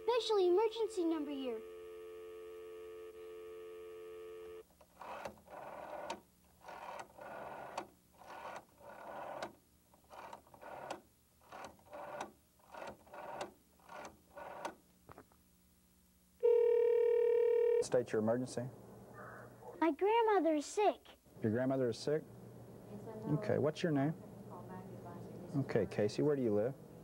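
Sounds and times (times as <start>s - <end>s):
telephone dial tone: 0.0s - 9.5s, 16.4s - 17.8s
rotary dial whirring and clicking: 1.6s - 14.9s.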